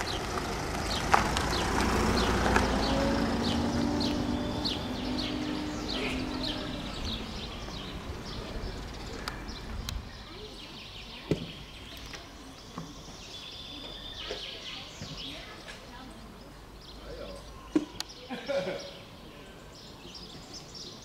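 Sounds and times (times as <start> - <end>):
outdoor background hush: 0.0 - 21.0
songbirds chirping: 0.0 - 21.0.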